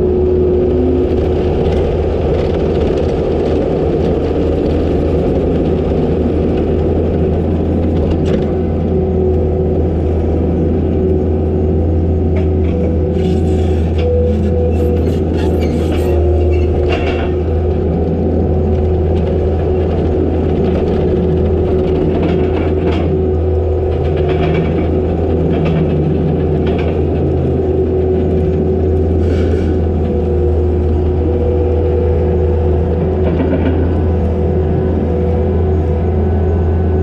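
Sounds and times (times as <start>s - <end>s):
rattles and knocks of tracks: 0.0s - 10.7s, 11.8s - 36.8s
diesel engine droning: 0.0s - 37.0s.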